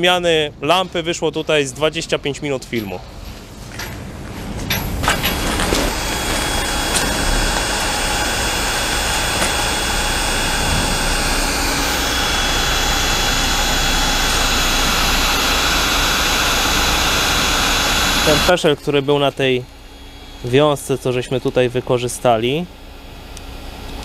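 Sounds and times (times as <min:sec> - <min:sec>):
faint high whine: 0:04.7 - 0:24.0
heat gun blowing: 0:05.0 - 0:20.8.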